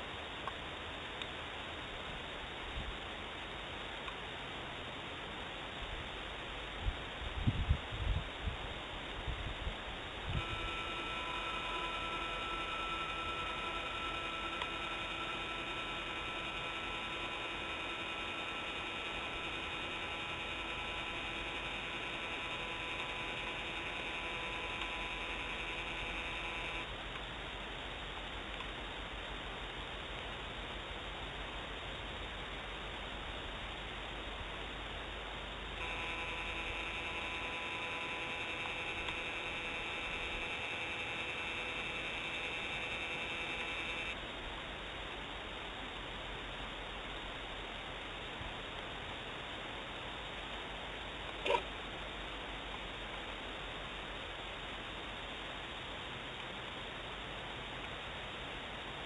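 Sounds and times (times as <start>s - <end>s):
steady hiss: 0.0s - 59.0s
camera pan motor humming: 10.2s - 27.0s, 35.8s - 44.2s.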